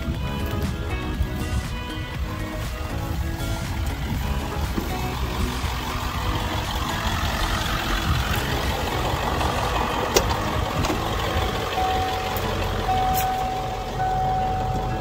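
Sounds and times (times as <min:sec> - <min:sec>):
diesel engine idling: 0:00.0 - 0:15.0
steady electronic beep: 0:11.7 - 0:15.0.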